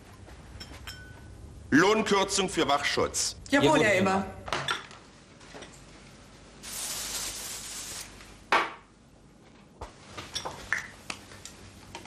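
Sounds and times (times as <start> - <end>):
steady hiss: 6.5 - 8.5.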